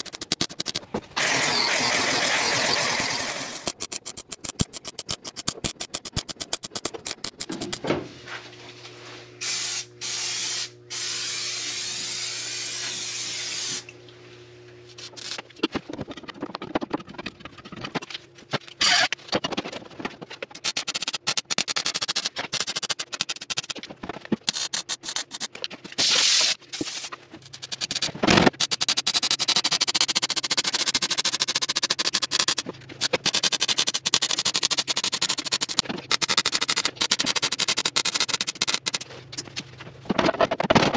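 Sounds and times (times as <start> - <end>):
welder crackling: 0.0 - 7.8.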